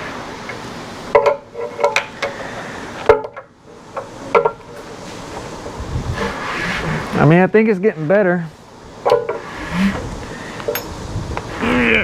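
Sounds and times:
hand tools knocking and clinking: 10.7 - 10.9.

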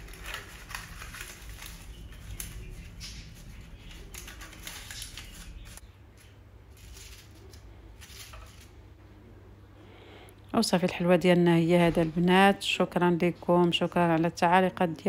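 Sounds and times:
paper cake cases rustling: 0.0 - 8.8
steady low hum: 0.0 - 15.0.

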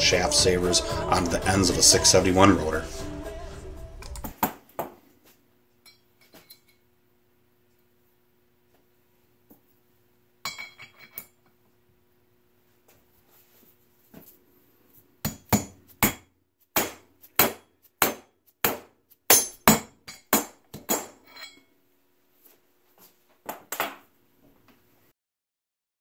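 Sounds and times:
mallet striking metal: 16.8 - 21.2.

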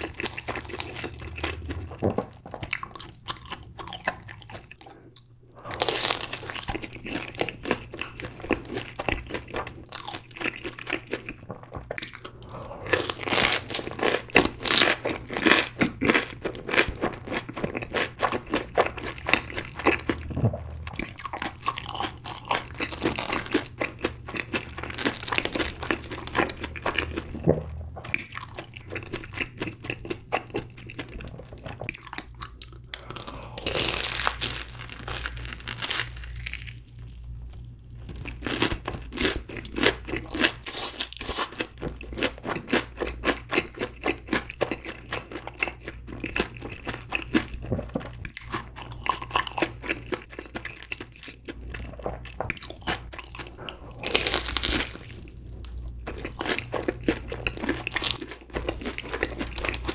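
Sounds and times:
crunching bites of fried food: 0.0 - 4.9, 5.7 - 11.4, 12.9 - 27.5, 28.1 - 59.9
wet chewing: 0.0 - 59.9.

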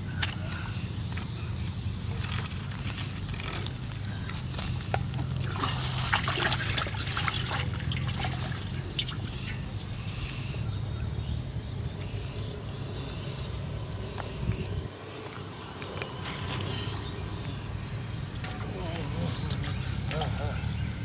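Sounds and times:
water splashing and trickling: 0.0 - 10.7, 18.2 - 21.0.

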